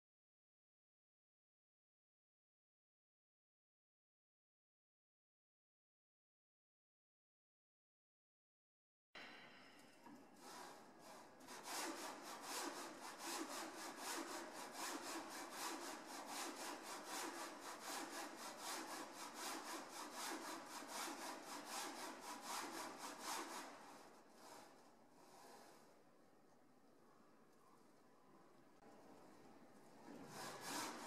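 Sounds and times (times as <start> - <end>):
motor-driven cart rasping on rail: 30.1 - 31.0.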